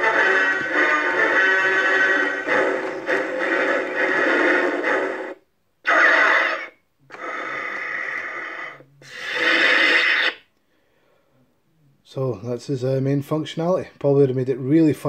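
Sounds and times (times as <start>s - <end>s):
music from tinny toy speaker: 0.0s - 5.4s.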